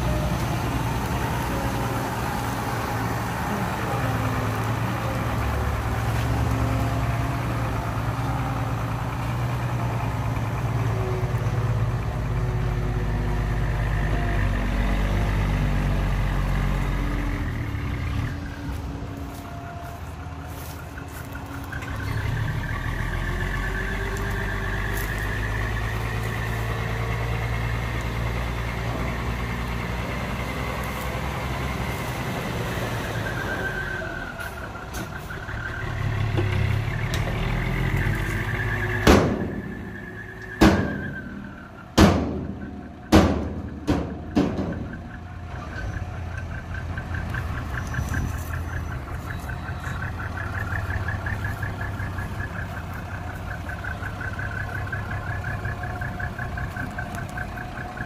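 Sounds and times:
diesel engine revving: 0.0s - 58.0s
sharp metal bangs: 39.0s - 40.0s, 40.6s - 45.2s.

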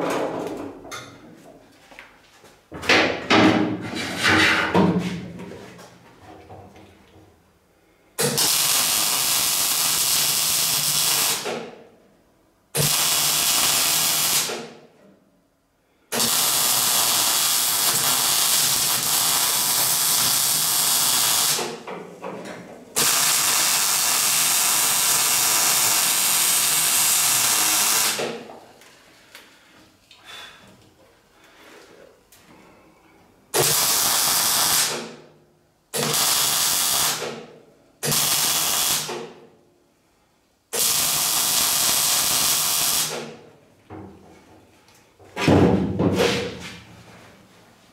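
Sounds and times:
welder arc crackling: 8.3s - 11.5s, 12.8s - 14.6s, 16.2s - 21.6s, 23.0s - 28.2s, 33.6s - 34.9s, 36.0s - 37.2s, 38.1s - 39.1s, 40.8s - 43.2s.

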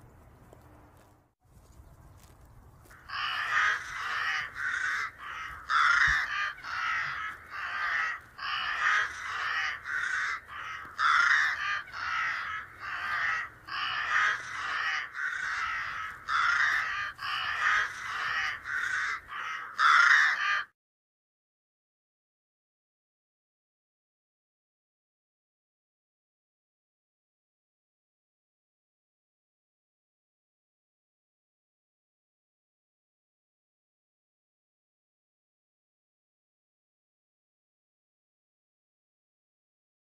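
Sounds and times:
crows cawing: 2.2s - 20.8s.

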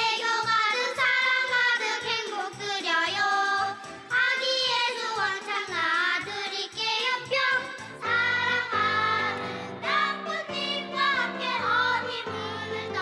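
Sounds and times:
children singing: 0.0s - 13.0s
music accompaniment: 0.0s - 13.0s.

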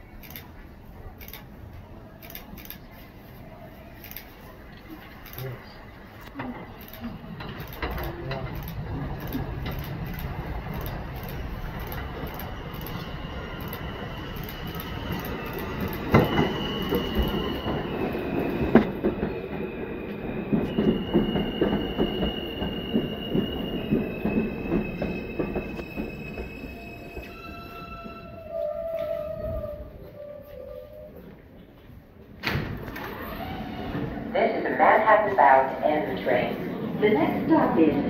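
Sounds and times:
train wheels rumbling and clacking: 4.0s - 28.4s.

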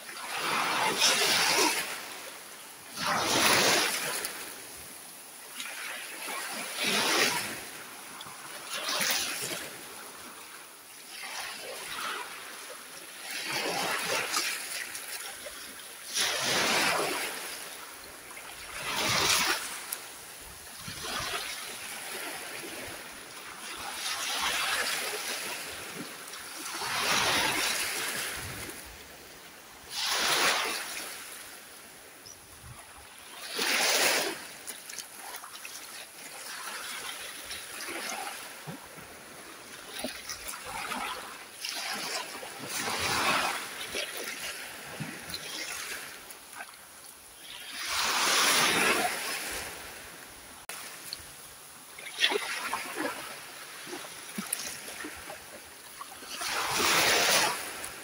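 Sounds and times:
waves washing up a shore: 0.0s - 58.0s
sharp wave splash: 2.9s - 4.6s, 16.1s - 17.8s, 18.4s - 20.0s, 23.4s - 28.9s, 29.9s - 31.8s, 33.2s - 38.4s, 47.4s - 51.1s, 56.3s - 58.0s.

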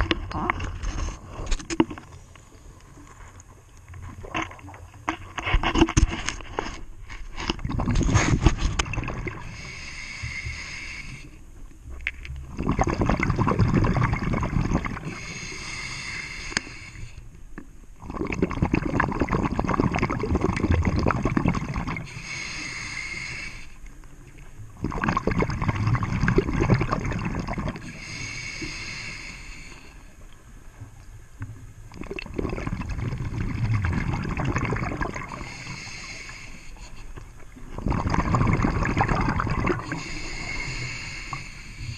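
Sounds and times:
exhaled bubbles gurgling: 0.0s - 2.2s, 7.5s - 10.9s, 12.4s - 16.8s, 18.0s - 23.6s, 24.6s - 29.4s, 31.8s - 36.4s, 37.4s - 41.9s
regulator inhale hiss: 9.4s - 11.4s, 15.1s - 17.4s, 22.0s - 24.0s, 27.8s - 30.2s, 35.3s - 37.1s, 39.8s - 41.9s.

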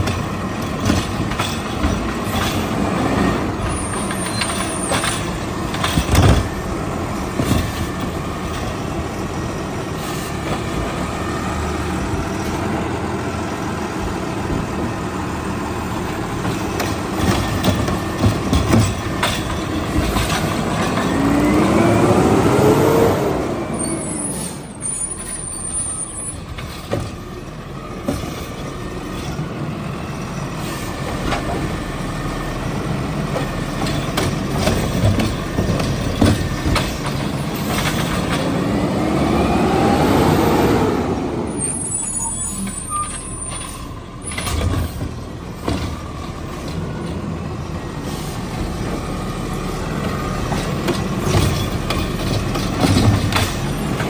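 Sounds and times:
cart and arm knocking and clanking: 0.0s - 12.8s, 15.7s - 22.0s, 24.8s - 30.0s, 30.6s - 39.4s, 42.5s - 54.0s
garbage truck engine running: 0.0s - 54.0s
engine revving in rising whine: 21.0s - 24.0s, 38.5s - 41.7s.

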